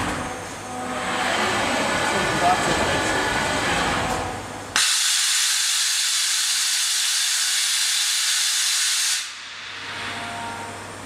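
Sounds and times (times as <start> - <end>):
loud machine hiss: 4.8 - 11.0.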